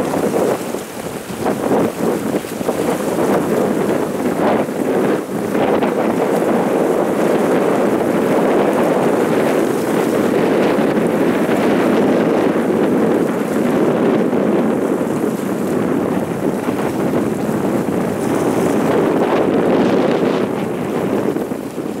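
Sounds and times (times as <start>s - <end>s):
wind blowing across microphone: 0.0s - 22.0s.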